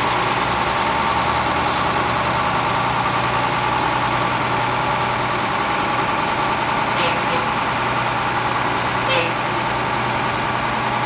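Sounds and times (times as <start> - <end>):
diesel truck engine running: 0.0 - 11.0.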